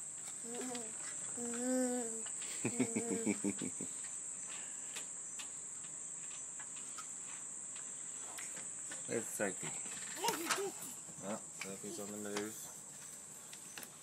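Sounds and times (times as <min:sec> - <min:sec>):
insects chirring: 0:00.0 - 0:14.0
small child babbling: 0:00.4 - 0:03.5, 0:10.2 - 0:11.0.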